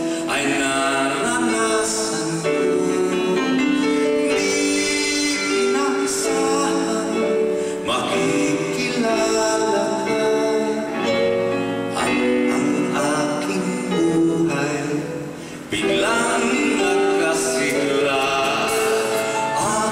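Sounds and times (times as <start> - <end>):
man singing a slow ballad: 0.0 - 19.9
live band playing: 15.3 - 19.9.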